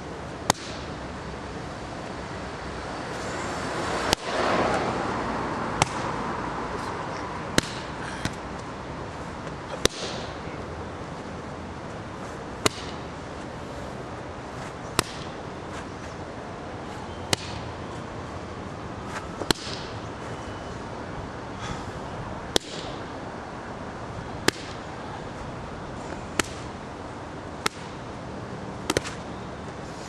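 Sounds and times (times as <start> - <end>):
hand slapping leather mitt: 5.8 - 6.1, 28.9 - 29.2.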